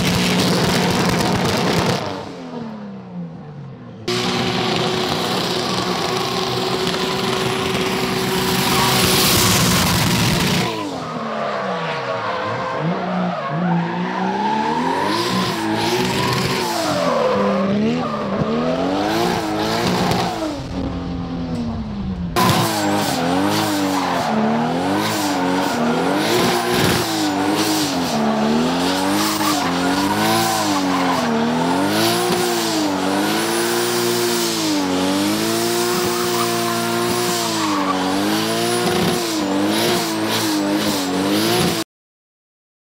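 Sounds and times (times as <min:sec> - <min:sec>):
car engines revving hard: 0:00.0 - 0:02.8, 0:03.7 - 0:21.6, 0:22.2 - 0:41.8.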